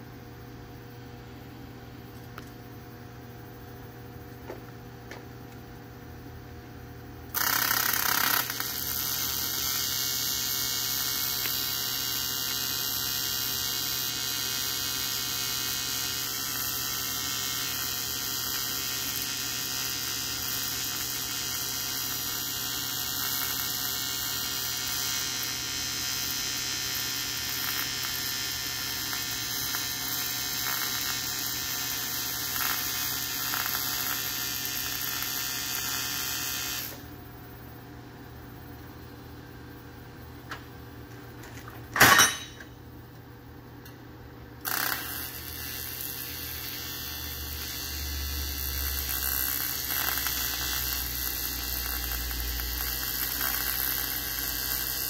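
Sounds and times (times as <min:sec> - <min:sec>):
arc strike crackle: 0:07.3 - 0:37.1, 0:44.6 - 0:55.0
welding arc buzzing: 0:07.3 - 0:37.6, 0:44.6 - 0:55.0.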